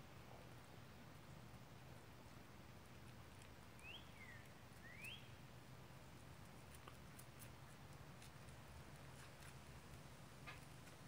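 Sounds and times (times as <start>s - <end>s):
faint high chirps: 3.8s - 5.4s.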